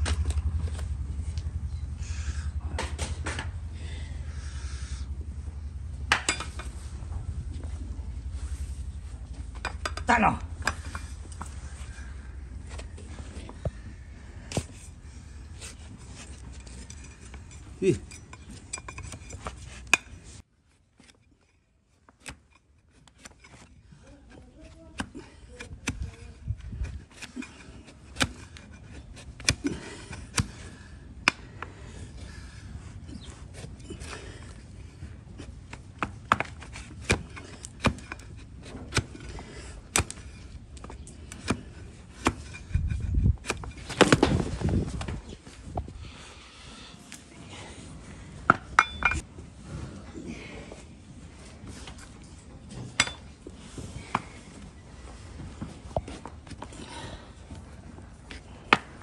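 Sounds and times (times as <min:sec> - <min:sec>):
low thuds and scuffling: 0:35.4 - 0:46.0.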